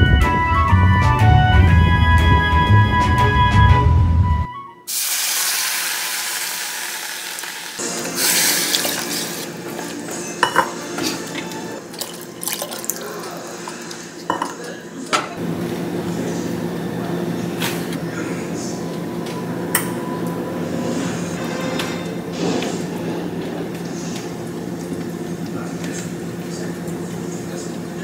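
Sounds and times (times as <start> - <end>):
background music: 0.0 - 4.9, 7.3 - 14.3
sauce stirred in a saucepan: 7.3 - 10.0, 11.2 - 14.8.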